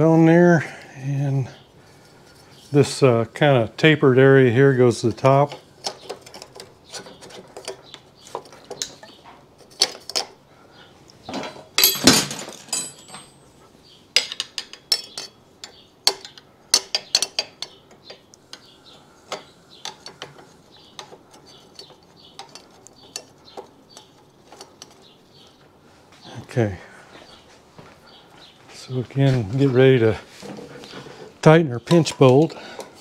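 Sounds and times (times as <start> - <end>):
metal clicks and knocks: 5.5 - 10.4, 14.2 - 18.7, 19.3 - 25.1
metal rattle: 11.3 - 13.4.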